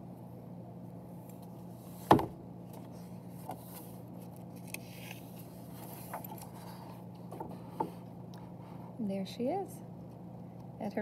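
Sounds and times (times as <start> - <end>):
low steady hum: 0.0 - 11.0
book page flipping: 2.7 - 7.4.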